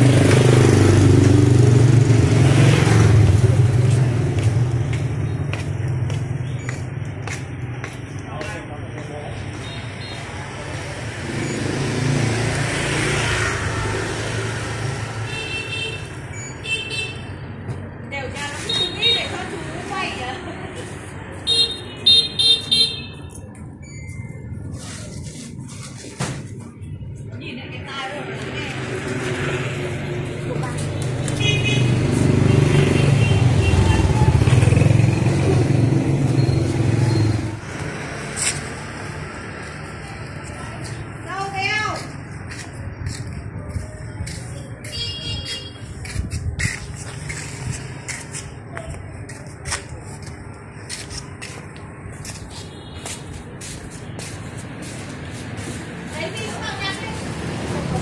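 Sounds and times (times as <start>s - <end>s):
vehicle passing: 0.0s - 6.2s, 27.8s - 44.9s, 53.4s - 58.0s.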